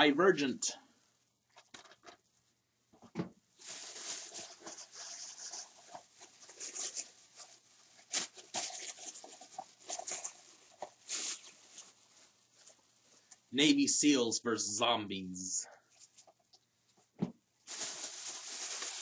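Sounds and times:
plastic bag crinkling: 0:03.6 - 0:12.8, 0:17.6 - 0:19.0.

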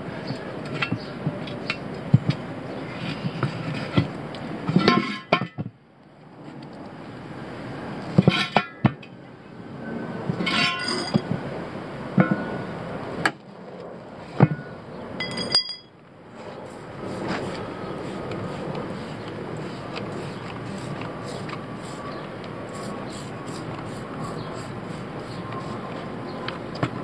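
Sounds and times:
tire irons clanking on wheel rim: 0:00.4 - 0:05.8, 0:08.1 - 0:09.1, 0:10.3 - 0:11.4, 0:14.3 - 0:15.9.

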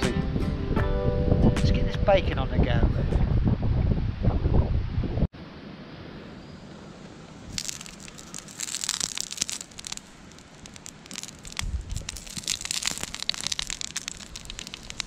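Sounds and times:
tomatoes sizzling in hot oil: 0:07.5 - 0:15.0.

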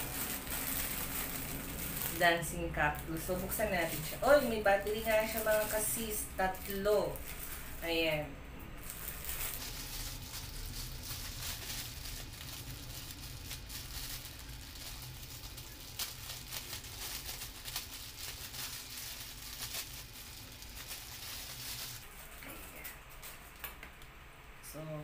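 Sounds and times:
plastic bag crinkling: 0:00.0 - 0:23.9.

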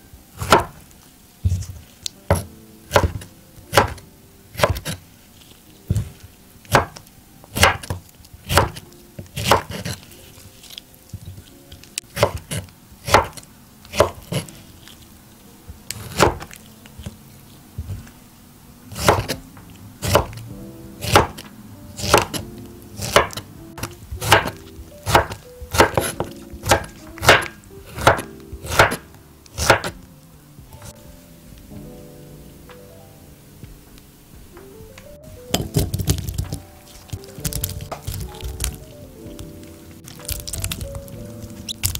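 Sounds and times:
quiet background music: 0:00.0 - 0:41.9
knife chopping on wooden board: 0:00.4 - 0:00.8, 0:01.4 - 0:05.0, 0:05.9 - 0:08.8, 0:09.4 - 0:10.0, 0:12.1 - 0:14.6, 0:15.9 - 0:17.1, 0:18.9 - 0:19.4, 0:20.0 - 0:20.4, 0:21.0 - 0:22.4, 0:23.0 - 0:30.0.

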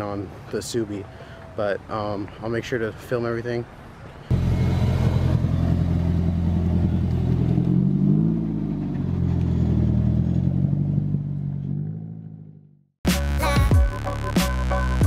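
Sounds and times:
car engine and exhaust passing: 0:04.3 - 0:12.8.

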